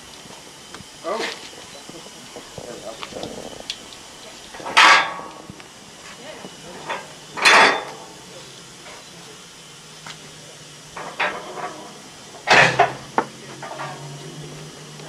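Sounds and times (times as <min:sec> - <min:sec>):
sharp clicks: 0:02.4 - 0:04.4
metallic clanks: 0:02.4 - 0:05.5, 0:10.9 - 0:14.4.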